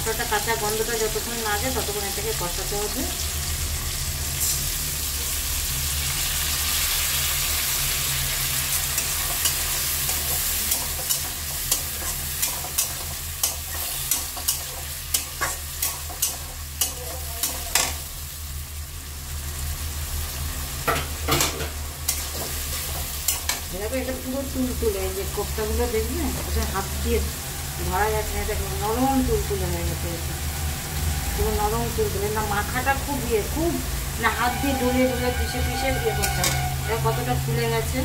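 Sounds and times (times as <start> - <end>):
paste sizzling in hot oil: 0.1 - 26.0
metal spatula scraping a pan: 8.2 - 18.0, 34.2 - 37.6.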